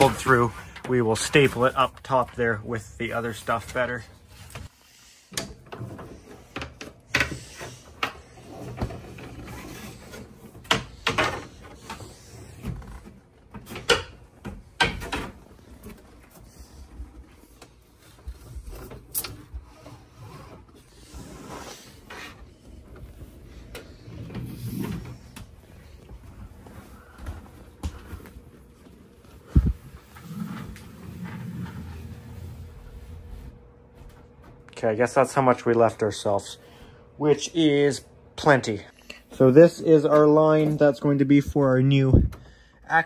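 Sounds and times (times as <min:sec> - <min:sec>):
cable scraping inside wall: 0:29.6 - 0:33.6.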